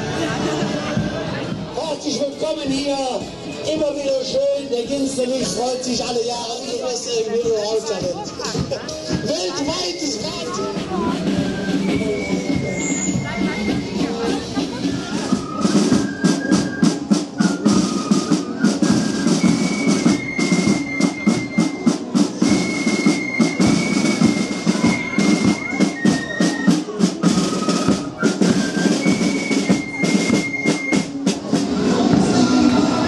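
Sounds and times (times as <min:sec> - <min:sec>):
flutes playing melody: 0:00.0 - 0:33.0
rapid snare drumming: 0:07.4 - 0:33.0.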